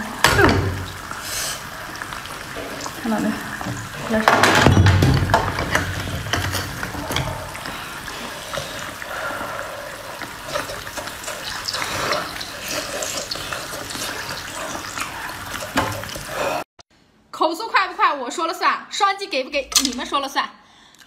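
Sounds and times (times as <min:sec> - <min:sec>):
wet slurping and chewing: 0:06.0 - 0:16.6.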